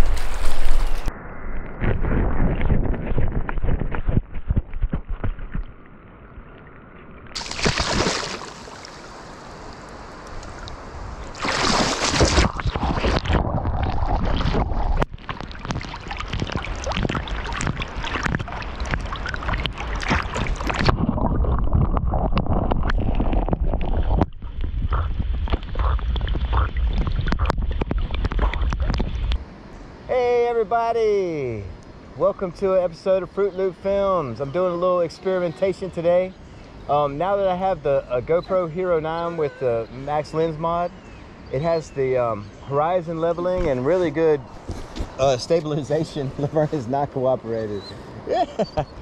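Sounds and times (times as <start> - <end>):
dog splashing through water: 7.4 - 9.1, 11.3 - 21.5.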